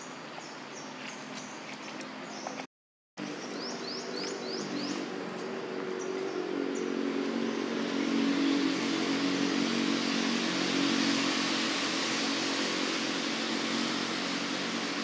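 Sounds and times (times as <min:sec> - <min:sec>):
vehicle engine running: 0:03.2 - 0:15.0.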